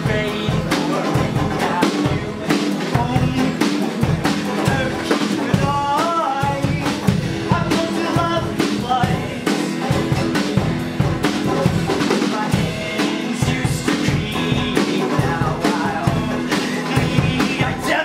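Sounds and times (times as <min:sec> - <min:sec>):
drum kit beat: 0:00.0 - 0:18.0
guitar: 0:00.0 - 0:18.0
person singing: 0:00.0 - 0:18.0.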